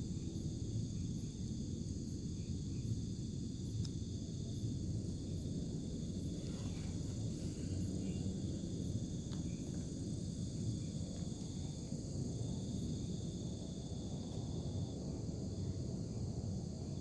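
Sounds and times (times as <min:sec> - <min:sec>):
crickets trilling: 0:00.0 - 0:17.0
low rumbling noise: 0:04.5 - 0:13.6.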